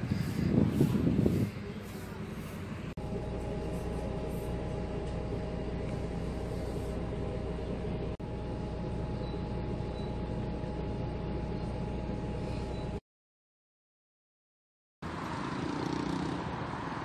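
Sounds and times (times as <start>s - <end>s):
vehicle engine droning: 0.0s - 13.0s.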